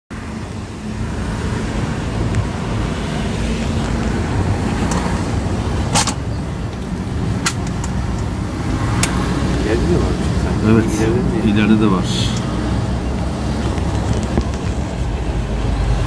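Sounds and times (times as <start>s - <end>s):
car road noise: 0.1s - 16.0s.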